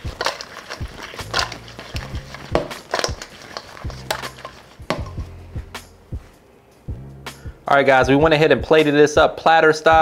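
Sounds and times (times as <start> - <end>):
wet slaps of food in a bowl: 0.0 - 5.3
background music: 0.0 - 10.0.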